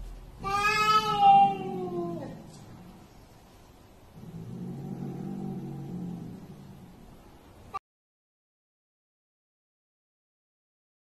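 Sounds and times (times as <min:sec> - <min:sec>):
cat growling: 0:00.4 - 0:03.2, 0:04.2 - 0:07.2.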